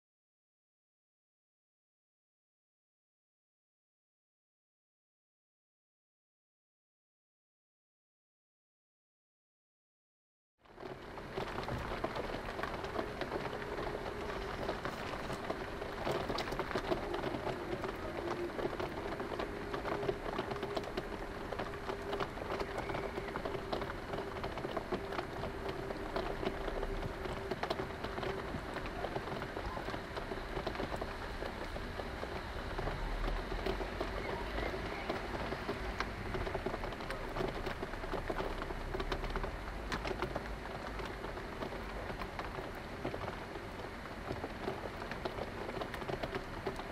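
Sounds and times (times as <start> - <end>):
heavy rain pattering: 10.6 - 46.9
low rumble of thunder: 10.8 - 46.9.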